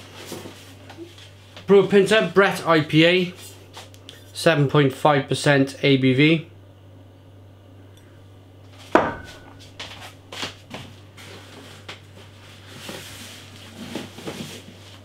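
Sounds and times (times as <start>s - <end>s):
steady low hum: 0.0s - 15.0s
glass bottle set down on table: 9.0s - 9.6s.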